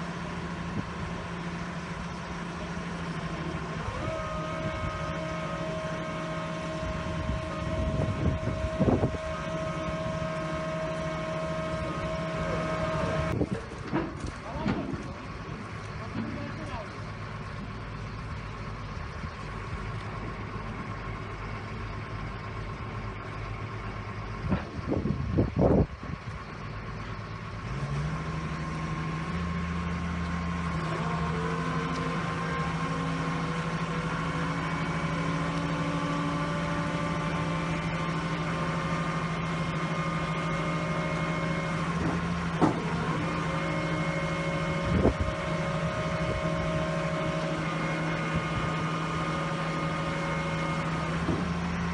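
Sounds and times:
diesel engine running: 0.0 - 51.9.

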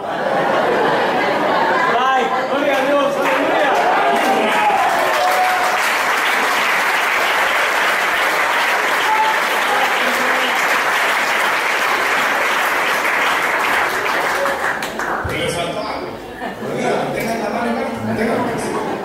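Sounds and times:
congregation applauding: 2.7 - 15.5.

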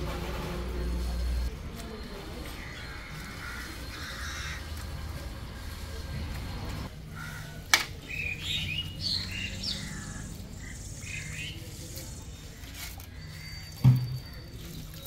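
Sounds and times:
bird cawing: 2.6 - 4.8, 7.1 - 7.7, 9.0 - 11.6.

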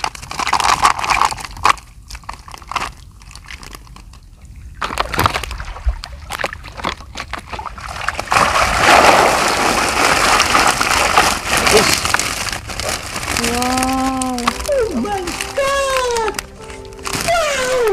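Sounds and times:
water sloshing and splashing: 0.0 - 13.4.

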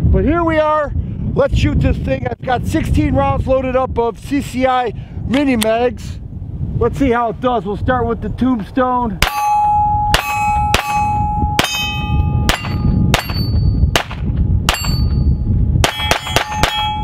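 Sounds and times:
bullets ringing on steel targets: 9.2 - 17.0
pistol shots: 12.5 - 15.0, 15.8 - 16.8.

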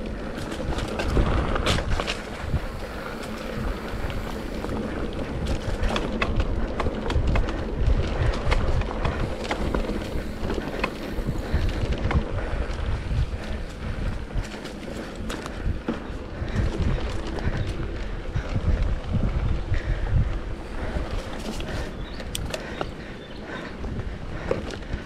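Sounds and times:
tyres rumbling over dirt: 0.0 - 18.4
bike clicks and knocks: 0.0 - 18.9, 20.6 - 25.0
wind buffeting microphone: 0.0 - 25.0.

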